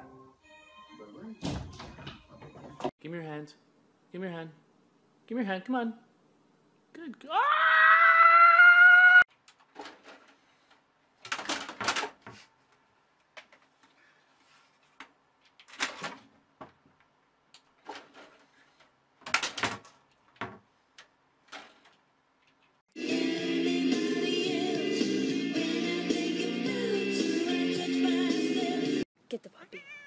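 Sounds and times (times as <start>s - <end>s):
loud music: 23.0s - 29.0s.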